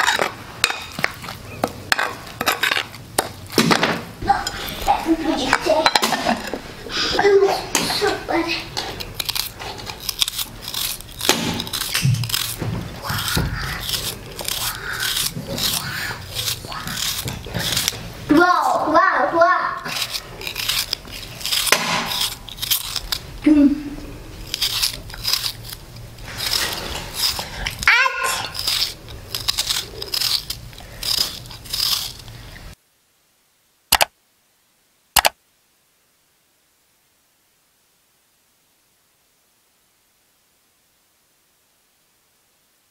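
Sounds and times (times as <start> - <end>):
knife cutting onion crunching: 8.8 - 18.2, 19.8 - 23.4, 24.0 - 32.5.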